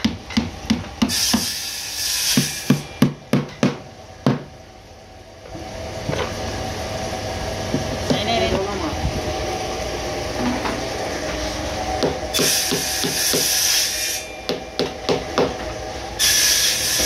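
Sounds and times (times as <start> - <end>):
claw hammer knocking on wood: 14.5 - 15.6.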